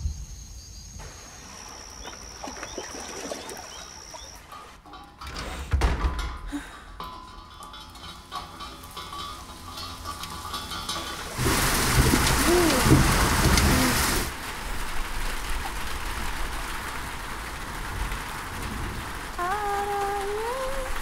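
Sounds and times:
heavy rain: 0:06.5 - 0:21.0.

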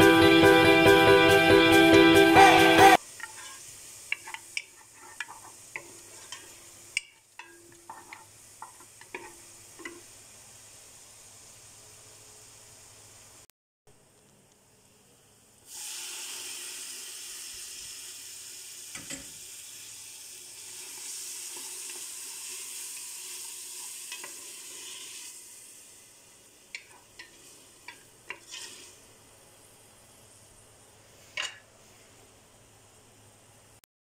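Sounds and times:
tomatoes sizzling in butter: 0:02.3 - 0:13.5, 0:15.6 - 0:33.0
wooden spoon scraping pot: 0:03.2 - 0:06.6, 0:07.4 - 0:10.0, 0:26.8 - 0:28.9.

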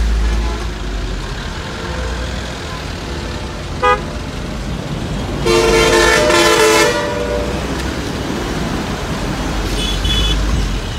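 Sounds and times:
truck and bus engines rumbling: 0:00.0 - 0:10.9
vehicle horn blasts: 0:03.8 - 0:04.0, 0:05.4 - 0:07.7, 0:09.7 - 0:10.5.

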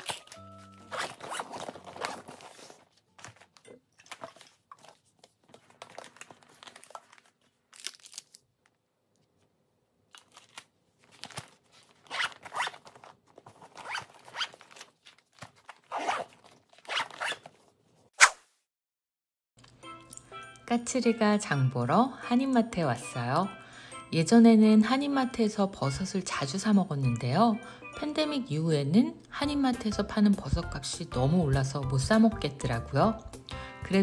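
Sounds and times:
rustling of packed items: 0:00.0 - 0:09.5, 0:10.1 - 0:18.1
zipper zipping: 0:00.8 - 0:02.6, 0:12.0 - 0:12.8, 0:13.8 - 0:14.5, 0:15.9 - 0:17.5.

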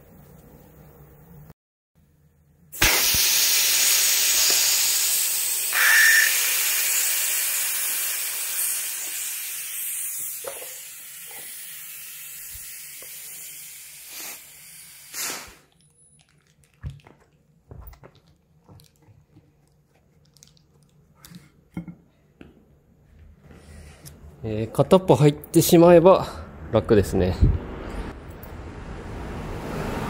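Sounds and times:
air hissing out of tyre valve: 0:02.8 - 0:15.7.

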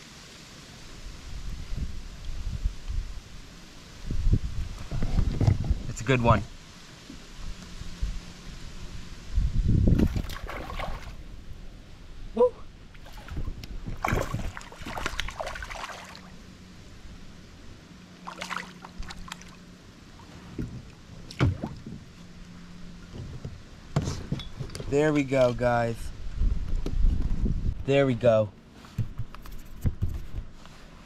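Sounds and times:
water splashing and sloshing: 0:09.8 - 0:11.8, 0:12.8 - 0:24.3.

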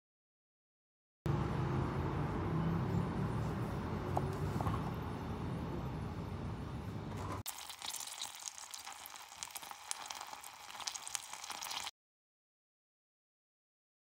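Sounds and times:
butter sizzling in a pan: 0:07.5 - 0:11.9.

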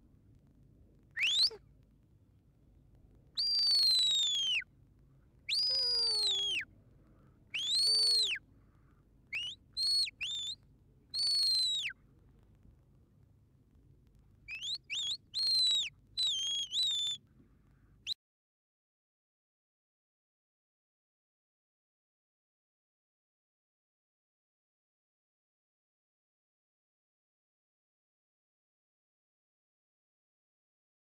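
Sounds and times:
shrill shepherd's whistle: 0:01.2 - 0:01.6, 0:03.4 - 0:04.6, 0:05.5 - 0:06.7, 0:07.5 - 0:08.4, 0:09.3 - 0:12.0, 0:14.5 - 0:17.2.

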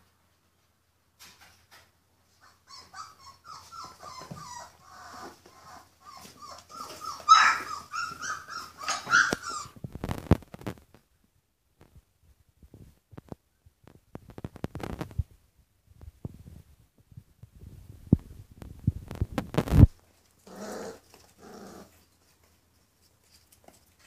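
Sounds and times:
puppies yipping and whimpering: 0:02.4 - 0:09.8.

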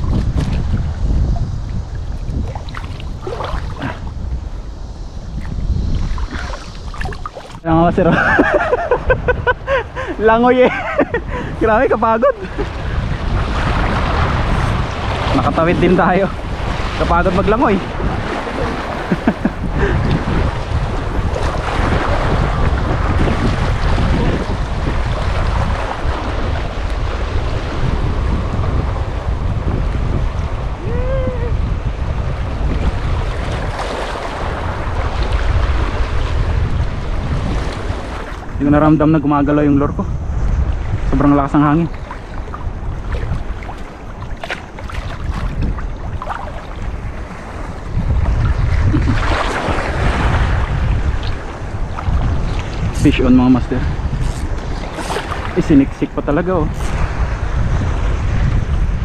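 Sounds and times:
small water sounds: 0:00.0 - 0:07.7, 0:41.8 - 0:53.1, 0:54.1 - 0:55.8
wind buffeting microphone: 0:00.0 - 0:59.0.

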